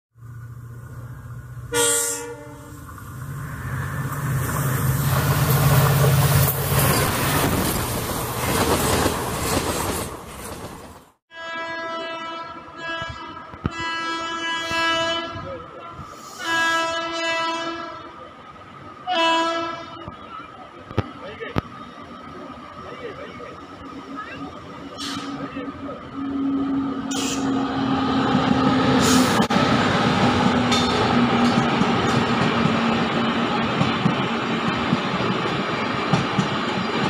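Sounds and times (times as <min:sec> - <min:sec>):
train horn blasts: 0:01.7 - 0:02.9, 0:11.3 - 0:18.2, 0:19.1 - 0:20.1, 0:26.1 - 0:28.0
train wheels rumbling on rails: 0:02.8 - 0:11.2, 0:13.0 - 0:37.0.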